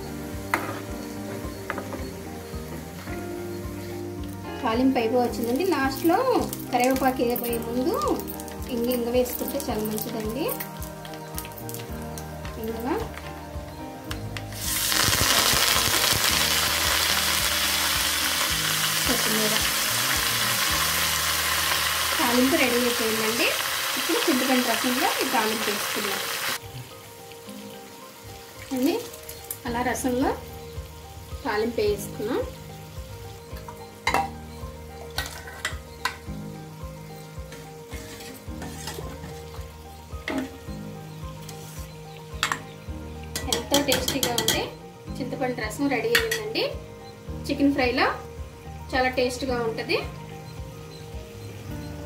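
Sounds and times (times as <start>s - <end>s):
oil sizzling and spitting: 0.0s - 44.7s
ladle stirring in pot: 37.9s - 39.5s.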